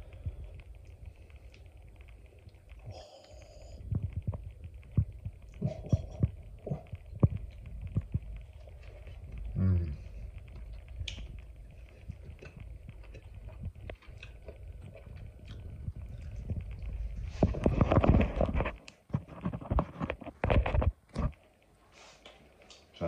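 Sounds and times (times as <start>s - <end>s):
person chewing toast: 0.0s - 21.4s
rustles and knocks: 10.4s - 21.4s.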